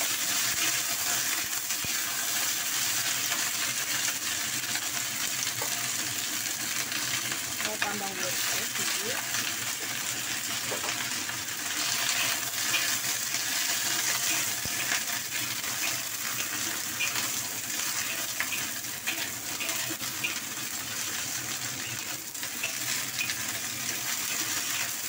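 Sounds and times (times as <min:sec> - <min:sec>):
vegetables sizzling in hot oil: 0:00.0 - 0:25.0
metal spatula scraping pan: 0:11.7 - 0:20.5, 0:21.8 - 0:24.5.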